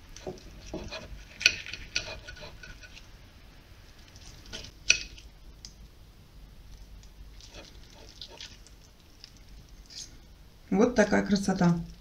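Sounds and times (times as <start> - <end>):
knife and fork cutting chicken: 0.2 - 3.0.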